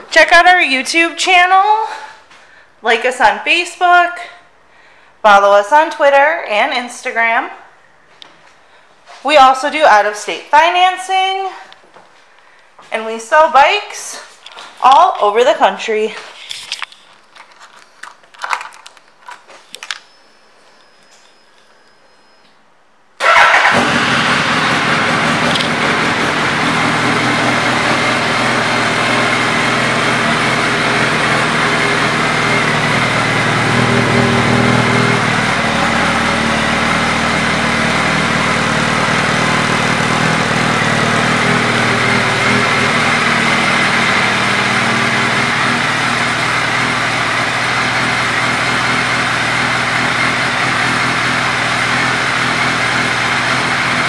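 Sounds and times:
motorcycle engine starting and idling: 23.2s - 54.0s.

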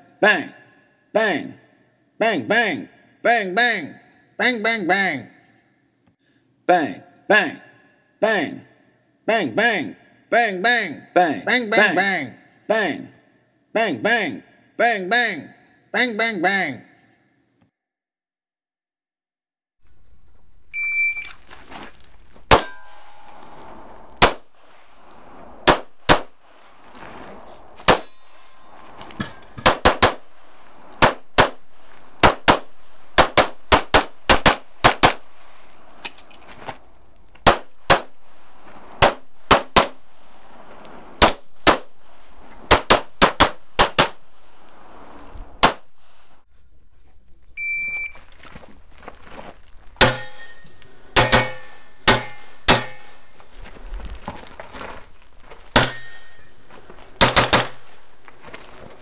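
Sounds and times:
shot timer beep: 20.8s - 21.3s
pistol shots: 22.5s - 23.2s, 24.2s - 24.5s, 25.6s - 26.4s, 27.8s - 28.2s, 29.6s - 30.4s, 31.0s - 35.4s, 37.4s - 38.3s, 39.0s - 40.1s, 41.2s - 42.0s, 42.7s - 44.3s, 45.6s - 45.9s, 51.2s - 53.2s, 57.2s - 58.0s.

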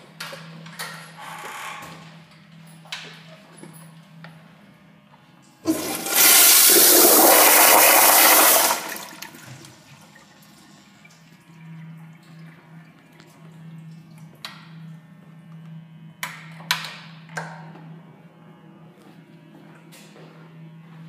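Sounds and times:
toilet flushing: 5.6s - 12.6s.

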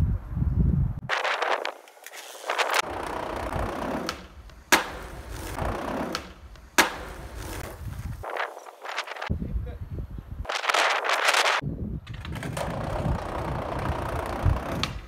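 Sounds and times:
skateboard rolling on concrete: 1.0s - 9.3s, 10.5s - 15.0s
skateboard clacks: 1.7s - 7.7s, 12.2s - 15.0s.

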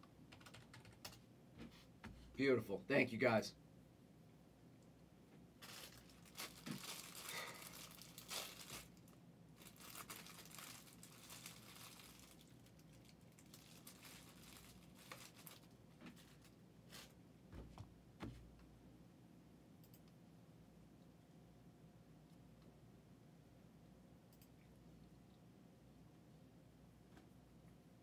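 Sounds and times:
plastic packaging crinkling: 5.6s - 17.2s.

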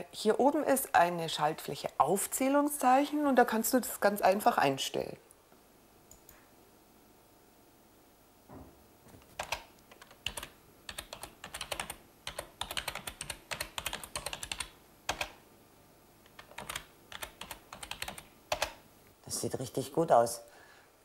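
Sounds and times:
computer keyboard typing: 9.2s - 15.4s, 16.2s - 18.8s.

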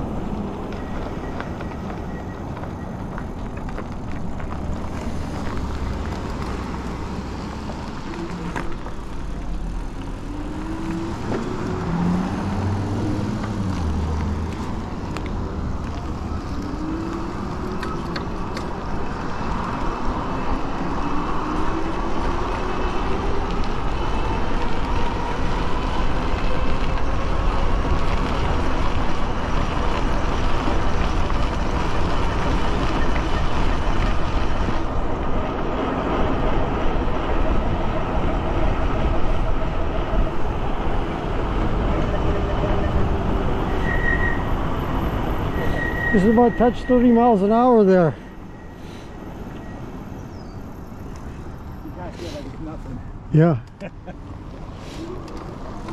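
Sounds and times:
tyre hiss on wet pavement: 48.7s - 49.2s, 54.8s - 55.2s.

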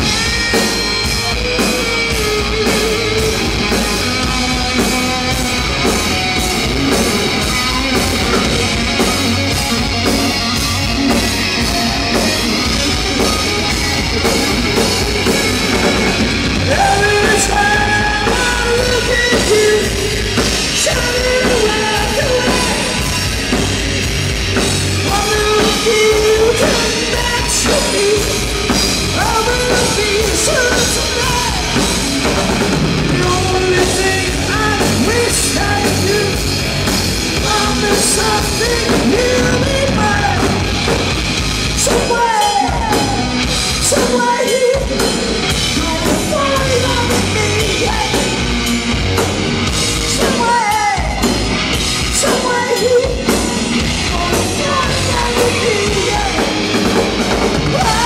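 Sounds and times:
bass guitar: 0.0s - 58.0s
distorted electric guitars: 0.0s - 58.0s
drum kit playing: 0.0s - 58.0s.

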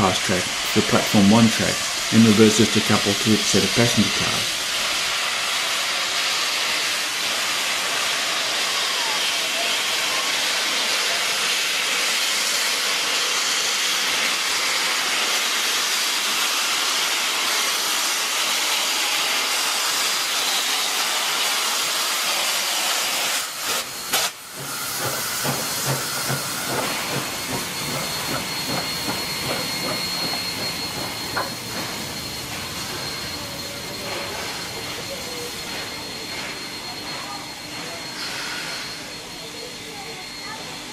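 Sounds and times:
loud steam hiss: 0.0s - 40.9s
soft locomotive chuffs: 24.4s - 39.2s
thin steady high tone: 27.5s - 40.9s.

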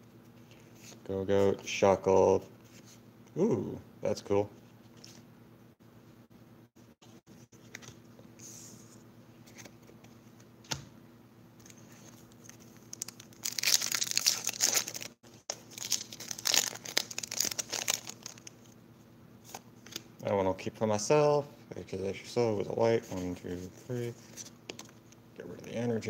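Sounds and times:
foil wrapper crinkling and tearing: 12.3s - 18.8s.

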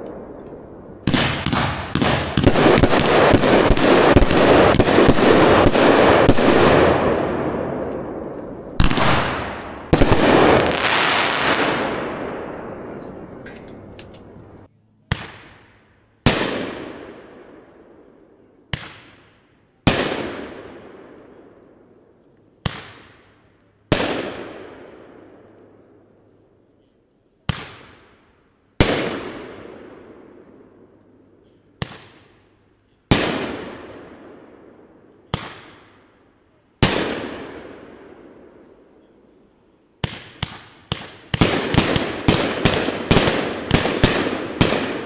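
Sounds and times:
firework aerial bursts: 1.0s - 12.4s
firework launch reports: 1.0s - 13.4s.

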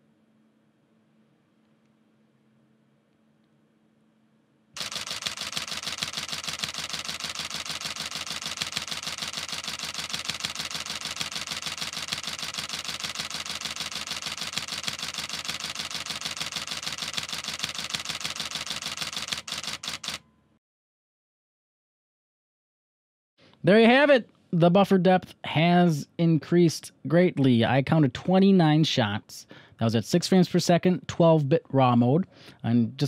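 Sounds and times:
camera shutter burst clicks: 4.8s - 20.2s.

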